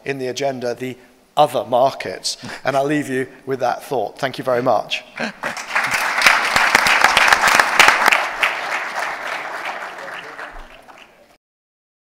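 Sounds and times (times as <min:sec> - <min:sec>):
audience applauding: 0:05.2 - 0:11.4.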